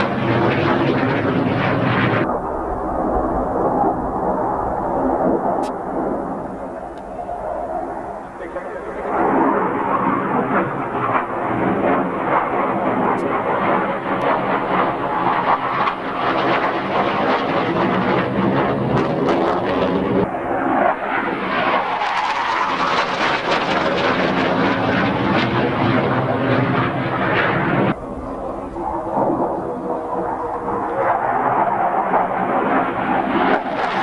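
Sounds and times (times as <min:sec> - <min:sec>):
jet engine roar: 0:00.0 - 0:34.0.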